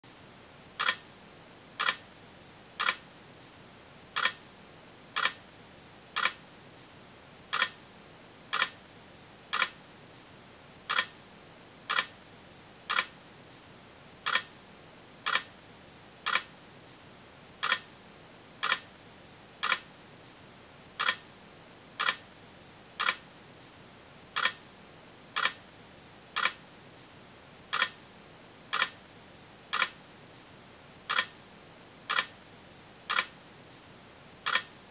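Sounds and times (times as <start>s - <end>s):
faint hiss: 0.1s - 34.9s
sharp rhythmic clicks: 0.8s - 1.1s, 1.8s - 2.0s, 2.8s - 3.0s, 4.2s - 4.4s, 5.2s - 5.4s, 6.2s - 6.4s, 7.5s - 7.8s, 8.5s - 8.8s, 9.5s - 9.8s, 10.9s - 11.1s, 11.9s - 12.1s, 12.9s - 13.1s, 14.2s - 14.5s, 15.2s - 15.5s, 16.2s - 16.5s, 17.6s - 17.9s, 18.6s - 18.9s, 19.6s - 19.9s, 21.0s - 21.2s, 22.0s - 22.2s, 23.0s - 23.2s, 24.4s - 24.6s, 25.4s - 25.6s, 26.4s - 26.6s, 27.7s - 28.0s, 28.7s - 29.0s, 29.7s - 30.0s, 31.1s - 31.3s, 32.1s - 32.3s, 33.1s - 33.4s, 34.4s - 34.7s.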